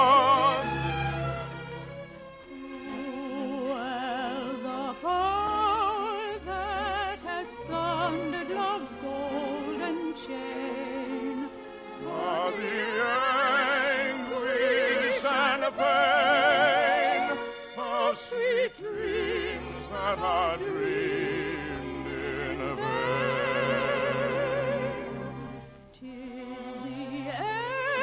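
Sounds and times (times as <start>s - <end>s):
soprano singing with vibrato: 0.0s - 1.2s, 2.5s - 25.4s, 26.0s - 28.0s
orchestral accompaniment: 0.0s - 28.0s.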